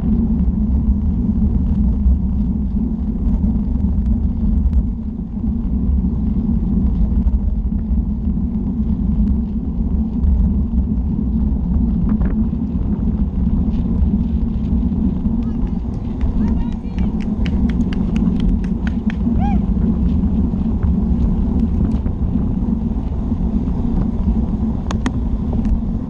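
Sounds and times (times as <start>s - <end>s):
bicycle tyre road noise: 0.0s - 26.0s
wind buffeting microphone: 0.0s - 26.0s
faint bicycle clicks: 12.0s - 23.2s, 24.0s - 25.9s.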